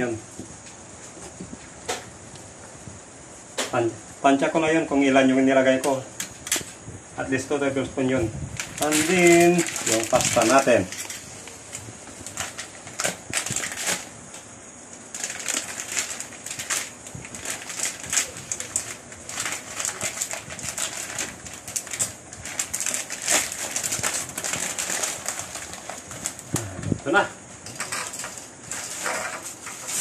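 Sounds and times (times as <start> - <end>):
steady faint hiss: 0.0 - 30.0
plastic bag crinkling: 8.5 - 14.2, 15.0 - 27.0, 27.6 - 30.0.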